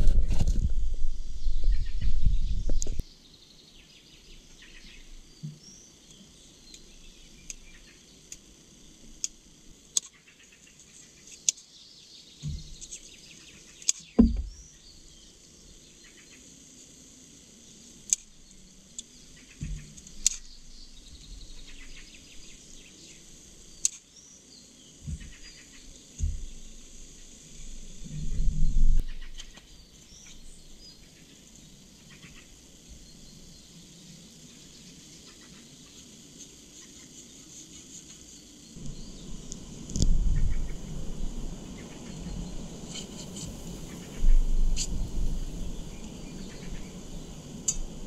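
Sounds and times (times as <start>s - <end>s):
close handling noise: 0.0s - 1.1s
soft low thuds: 14.2s - 14.6s
birds chirping: 17.6s - 37.6s, 38.3s - 48.0s
campfire crackling and popping: 38.8s - 48.0s.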